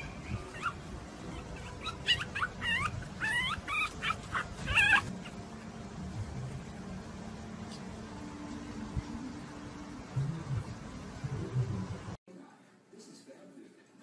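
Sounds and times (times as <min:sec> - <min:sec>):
puppy yipping and whimpering: 0:00.0 - 0:05.4.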